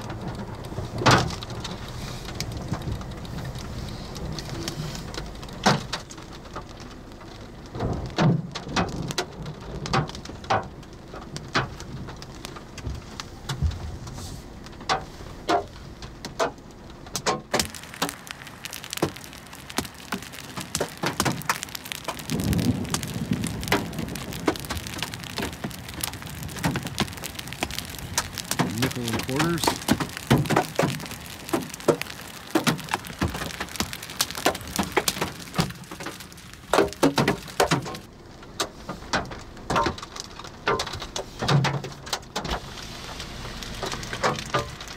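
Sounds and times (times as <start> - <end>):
heavy rain hiss: 0.0 - 6.0, 17.5 - 38.1, 42.5 - 44.9
hail striking car roof: 0.0 - 44.9.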